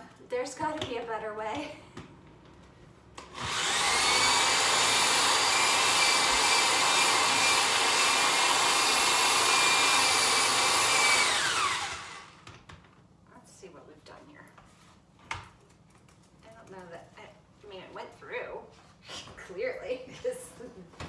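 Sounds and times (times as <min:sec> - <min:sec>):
cordless drill boring through wood: 0:03.2 - 0:12.4.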